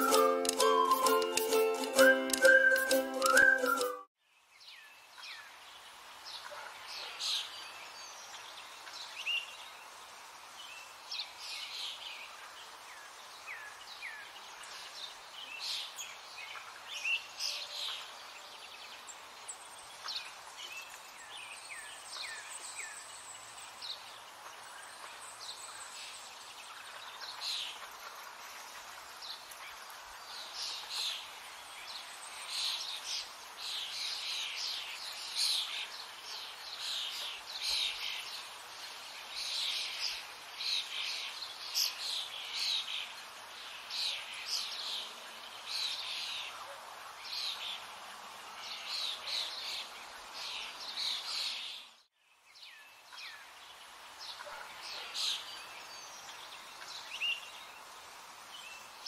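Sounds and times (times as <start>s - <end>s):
thin high tone: 0.0s - 4.1s
outdoor background hiss: 0.0s - 59.0s
small birds chirping: 10.6s - 46.6s.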